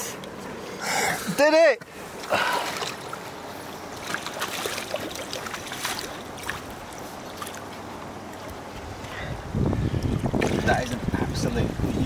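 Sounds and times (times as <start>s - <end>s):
shallow river water running: 0.0s - 12.0s
net splashing in water: 4.0s - 7.7s.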